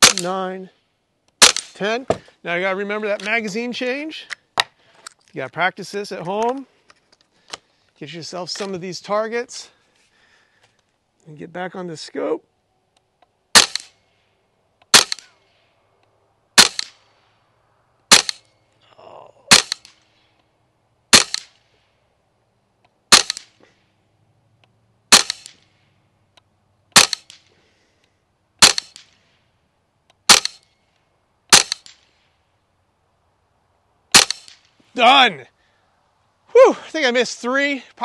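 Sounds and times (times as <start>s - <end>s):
air rifle shots: 0.0s - 0.5s, 1.4s - 2.2s, 13.5s - 14.2s, 14.9s - 15.6s, 16.6s - 17.2s, 18.1s - 18.5s, 19.5s - 20.3s, 21.1s - 21.9s, 23.1s - 23.7s, 25.1s - 25.9s, 26.9s - 27.6s, 28.6s - 29.4s, 30.2s - 30.7s, 31.5s - 32.4s, 34.1s - 34.7s.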